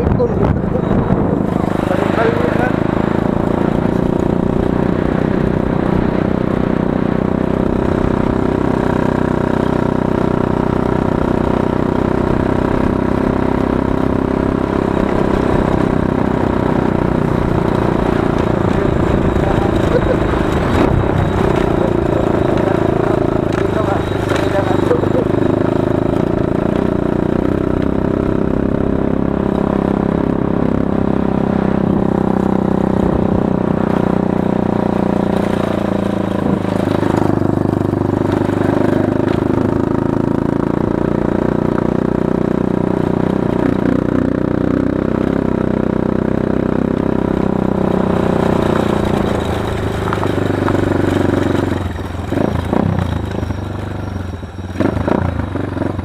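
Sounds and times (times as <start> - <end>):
small motorcycle engine running: 0.0 - 56.0.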